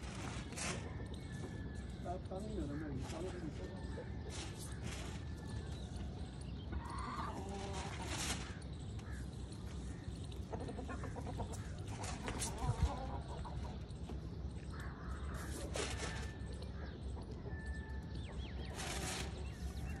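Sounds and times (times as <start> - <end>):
chickens clucking: 6.3 - 8.6, 9.4 - 14.4.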